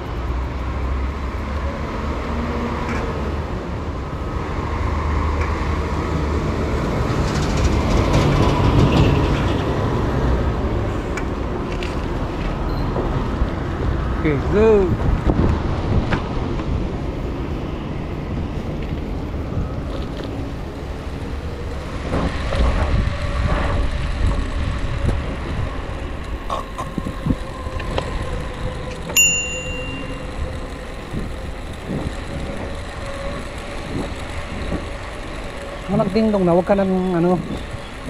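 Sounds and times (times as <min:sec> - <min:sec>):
bicycle tyre rumble: 0:00.0 - 0:38.0
wind: 0:00.0 - 0:38.0
bicycle bell ding: 0:29.2 - 0:30.5.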